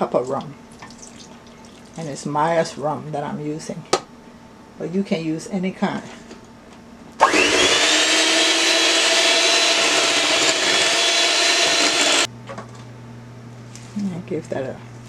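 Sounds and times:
electric hand mixer whining: 0:07.2 - 0:12.3.

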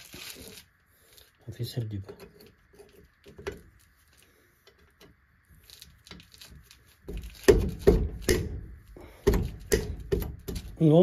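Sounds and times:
loud metal knocks: 0:07.1 - 0:10.8.

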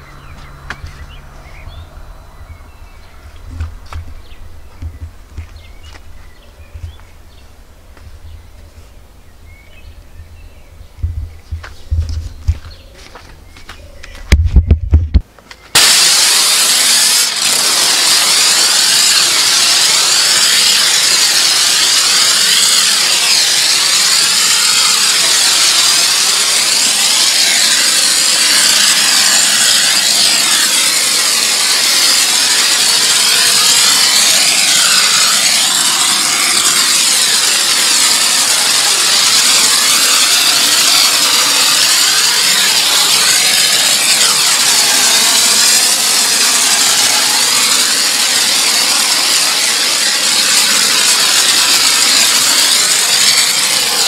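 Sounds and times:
pressure washer spraying car: 0:15.7 - 0:54.0.

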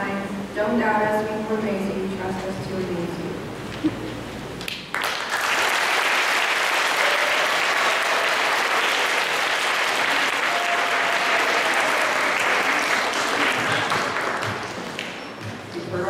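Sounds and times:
audience applauding: 0:04.6 - 0:15.4.

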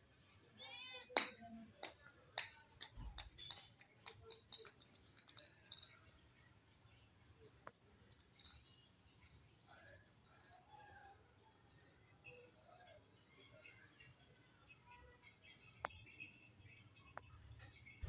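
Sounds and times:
plastic ball bouncing on tiles: 0:01.1 - 0:05.9, 0:07.6 - 0:08.8.

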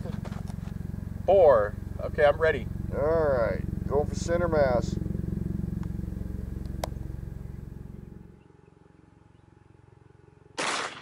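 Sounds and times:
engine idling: 0:00.0 - 0:10.6
shotgun shot: 0:10.6 - 0:11.0.

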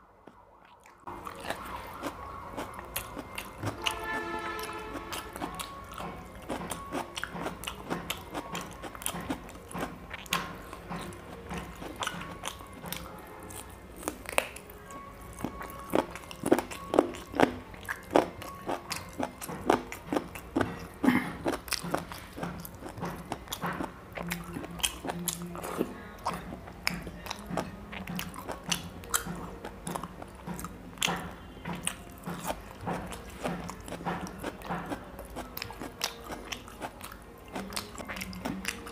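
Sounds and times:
food crunching: 0:00.2 - 0:38.9
person chewing and smacking: 0:00.2 - 0:38.9.

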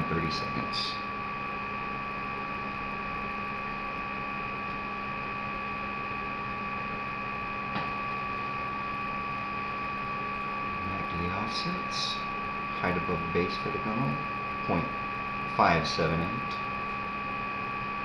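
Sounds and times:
electrical hum and hiss: 0:00.0 - 0:18.0
steady tones: 0:07.2 - 0:17.1.

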